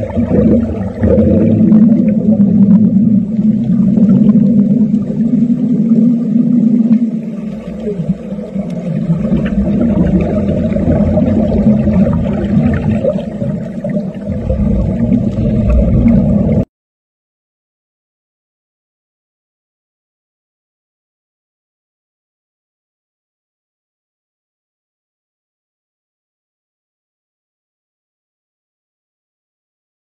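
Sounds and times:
underwater welding hum: 0.0 - 16.7.

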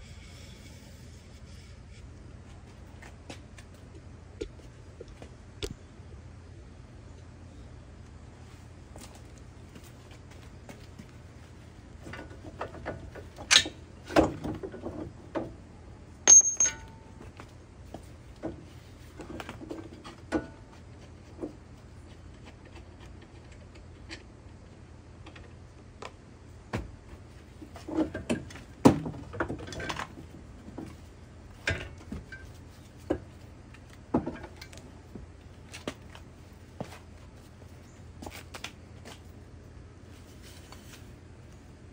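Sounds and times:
metallic tool clinks and rattles: 16.3 - 17.1.

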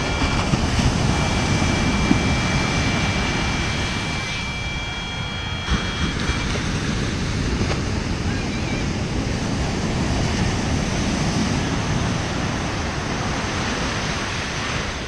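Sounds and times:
high electronic tone: 0.0 - 7.6
wind buffeting microphone: 0.0 - 15.0.

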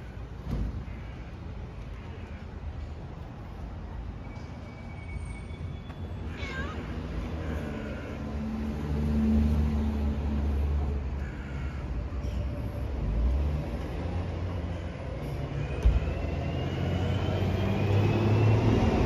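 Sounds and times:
cat meowing: 6.3 - 7.0.

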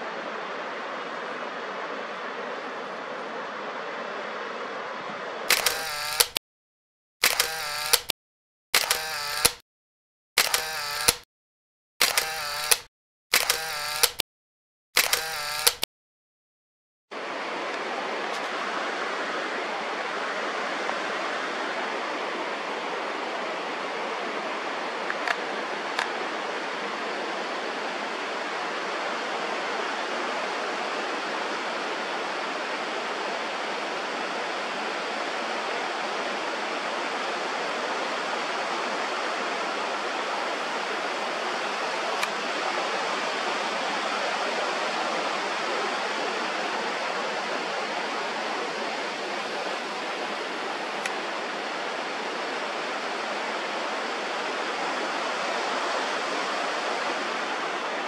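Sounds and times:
river rushing over rocks: 0.0 - 5.5, 17.1 - 58.0.

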